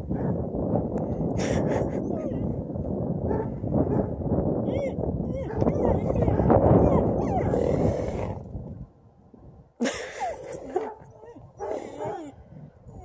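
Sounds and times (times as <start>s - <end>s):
dog whining and yowling: 4.7s - 7.9s, 10.2s - 13.0s.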